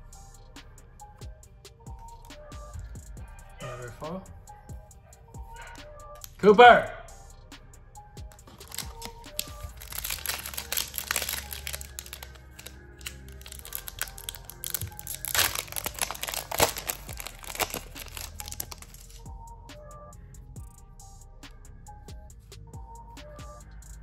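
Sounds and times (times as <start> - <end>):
soft background music: 0.0 - 24.0
foil wrapper crinkling and tearing: 8.3 - 19.3.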